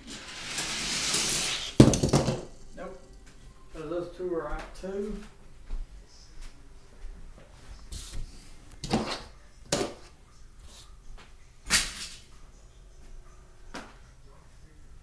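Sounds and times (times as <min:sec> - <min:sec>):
toy cars knocking and rattling: 0:00.0 - 0:02.6.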